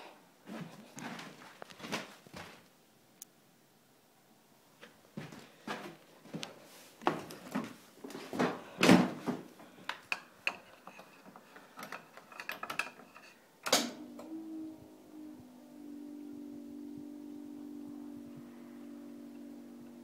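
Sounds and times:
steady low tone: 13.9s - 20.0s.

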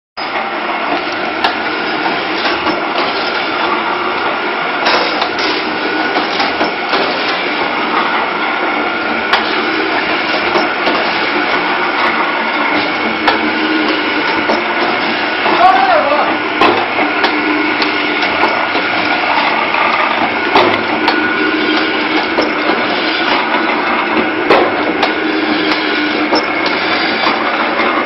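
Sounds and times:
press machine clatter: 0.2s - 28.0s
sharp knocks: 20.5s - 22.8s.

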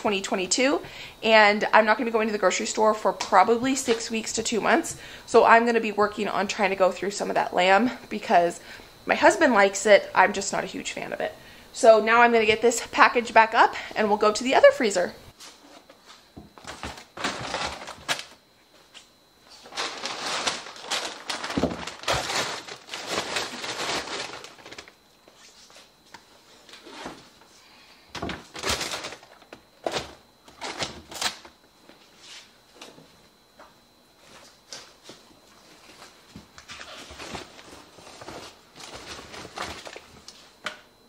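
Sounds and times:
packages knocking and thudding: 16.4s - 18.4s, 19.6s - 25.0s, 28.1s - 31.5s, 36.3s - 40.2s
plastic wrapping rustling: 16.6s - 18.4s, 19.5s - 25.7s, 28.4s - 31.5s, 35.8s - 40.4s.

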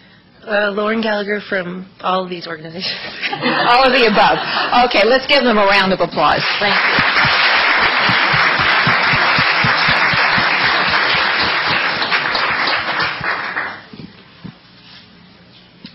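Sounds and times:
audience applauding: 6.4s - 13.9s.

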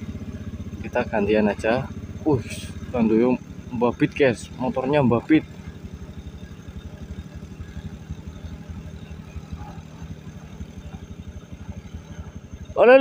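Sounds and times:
scooter engine running: 0.0s - 13.0s.

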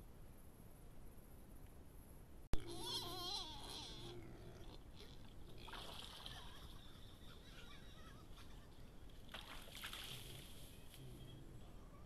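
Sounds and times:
water splashing in shallows: 5.6s - 6.7s, 9.2s - 10.8s.

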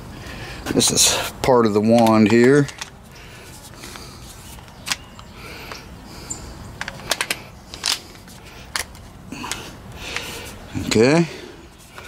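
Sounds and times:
plastic parts clicking together: 1.9s - 2.9s, 6.8s - 8.1s, 8.7s - 9.6s.

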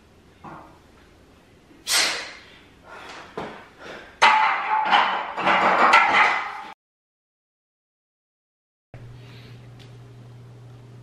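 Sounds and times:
barbell clanking in a rack: 4.2s - 6.7s.

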